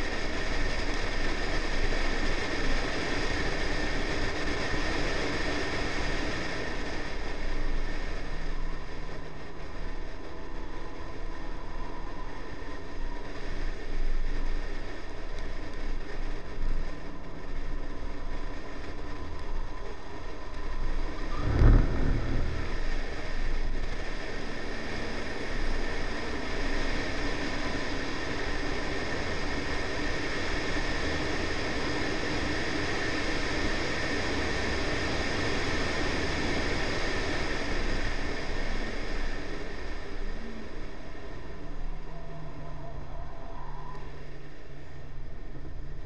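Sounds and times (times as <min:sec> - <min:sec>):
wind rushing over camera: 0:03.2 - 0:25.5
tyre and road roar: 0:20.6 - 0:27.1
car engine accelerating: 0:21.2 - 0:23.9
low thump: 0:21.3 - 0:23.7.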